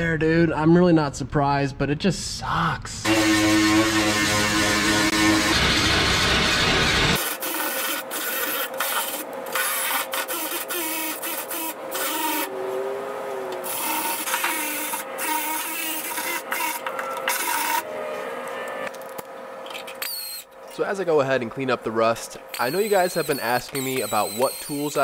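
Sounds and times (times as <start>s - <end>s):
handheld power tool on sheet metal: 3.1s - 12.5s, 13.5s - 17.8s, 20.0s - 20.5s, 22.5s - 25.0s.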